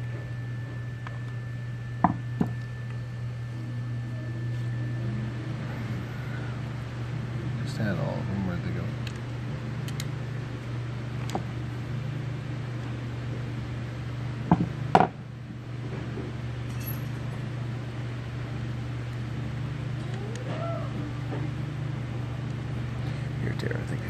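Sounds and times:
steady low hum: 0.0s - 24.0s.

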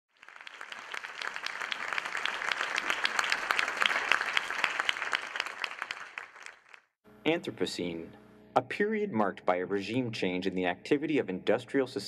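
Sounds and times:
audience applauding: 0.1s - 6.9s.

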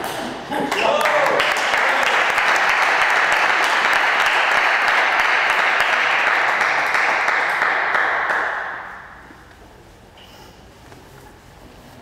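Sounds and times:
spectators applauding: 0.7s - 9.2s.

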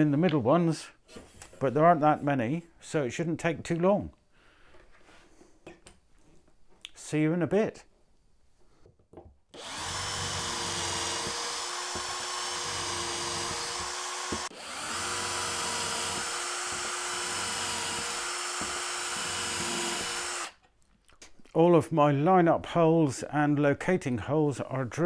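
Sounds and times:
cordless drill boring into wood: 9.6s - 20.6s.

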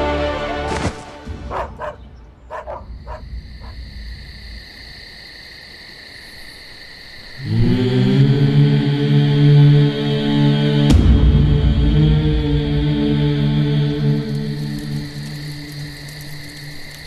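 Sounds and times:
dramatic background music: 0.0s - 3.8s, 9.8s - 16.0s
low chant-like music: 0.0s - 3.9s, 7.4s - 17.0s.

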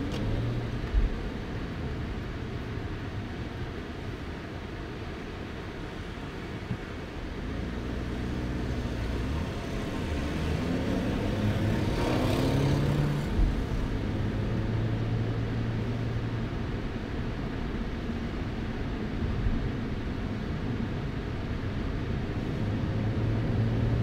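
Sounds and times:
road noise inside car: 0.0s - 24.0s
car engine accelerating: 7.4s - 16.2s.

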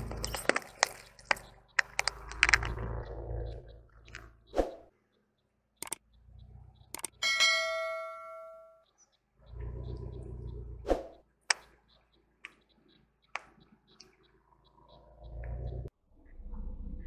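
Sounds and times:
car rumble: 0.0s - 4.5s, 13.5s - 17.0s
sharp clicks: 0.0s - 5.0s, 5.7s - 7.2s, 9.0s - 15.9s
bell-like ding: 7.2s - 8.8s.

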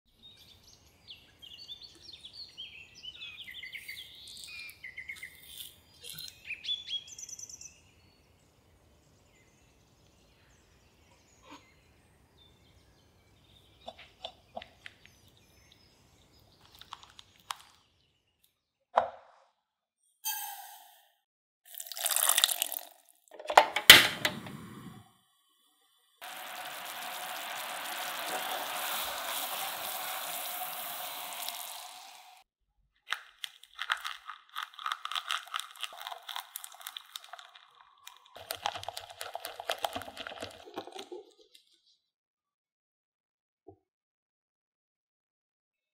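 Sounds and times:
high chirps: 20.2s - 21.2s
gas burner hissing: 23.8s - 25.1s, 26.2s - 32.4s.

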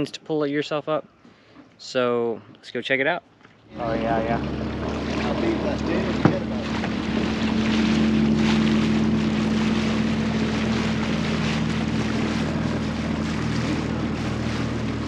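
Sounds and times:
outboard motor humming: 3.4s - 15.0s
water rushing: 3.7s - 15.0s.

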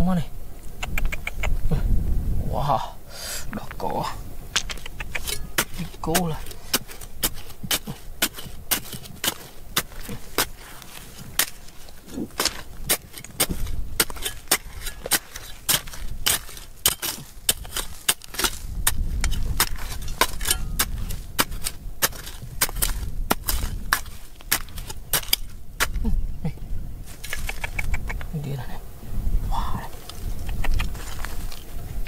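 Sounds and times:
digging tool striking rock: 4.5s - 26.1s.

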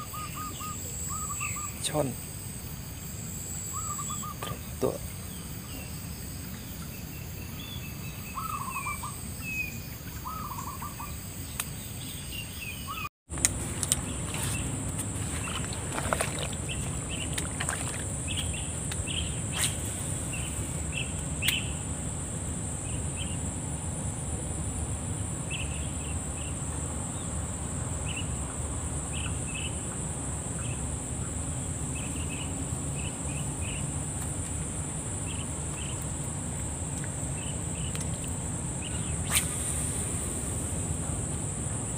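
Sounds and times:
birds chirping: 0.0s - 2.4s, 3.0s - 21.9s
high-pitched insect drone: 0.0s - 11.5s.

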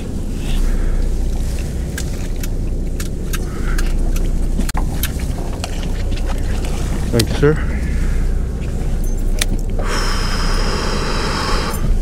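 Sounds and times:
boat engine rumble: 0.0s - 12.0s.

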